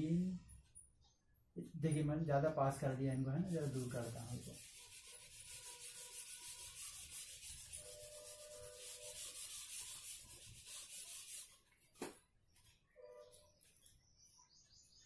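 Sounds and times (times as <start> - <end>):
eraser rubbing on whiteboard: 3.4 - 11.6.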